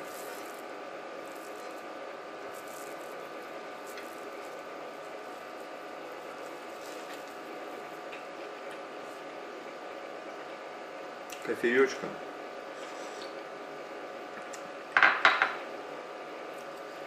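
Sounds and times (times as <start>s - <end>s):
room hiss: 0.0s - 8.0s
faint hum: 0.0s - 17.0s
soft clicks and squishes of food: 6.4s - 7.4s, 8.1s - 9.4s.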